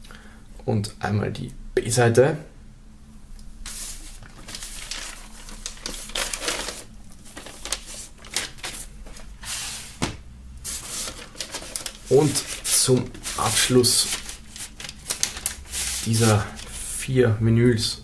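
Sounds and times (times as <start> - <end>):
paper rustling and scraping: 3.7 - 16.8.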